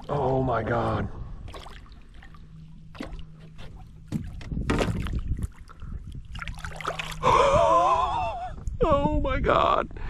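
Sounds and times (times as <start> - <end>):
fish splashing at water surface: 6.3 - 7.3.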